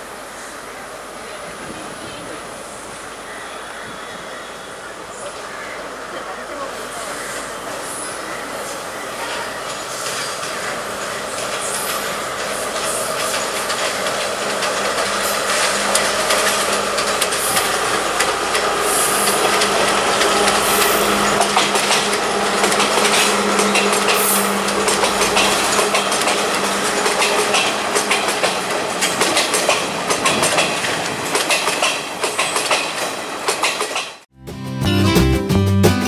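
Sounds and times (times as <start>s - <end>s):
train running noise: 0.0s - 34.3s
wheels clicking over rail joints: 9.2s - 34.2s.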